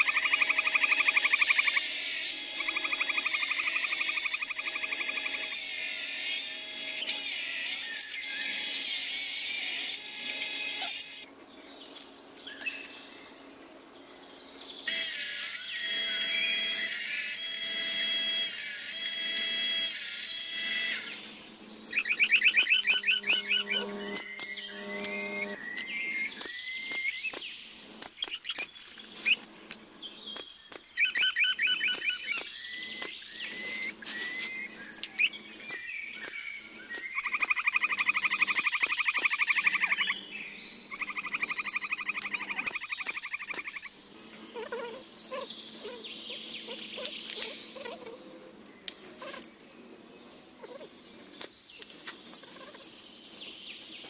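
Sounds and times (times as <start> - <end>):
rapid trilled calls: 0.0 - 9.9, 21.9 - 27.4, 31.0 - 48.0
table saw cutting wood: 0.0 - 11.3, 14.9 - 21.3, 22.6 - 25.6.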